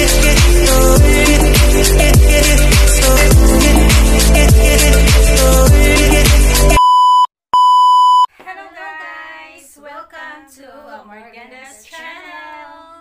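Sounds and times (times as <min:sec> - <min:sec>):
intro music: 0:00.0 - 0:06.8
high-pitched bleep tone: 0:06.8 - 0:08.3
women singing together: 0:08.4 - 0:13.0.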